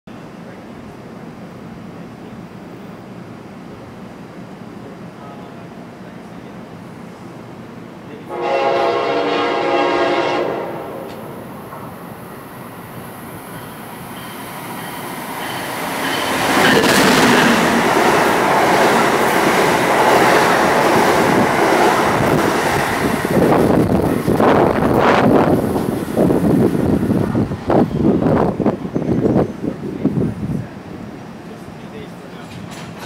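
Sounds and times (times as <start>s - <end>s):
train passing at speed: 0.1s - 33.0s
locomotive horn chord: 8.3s - 11.1s.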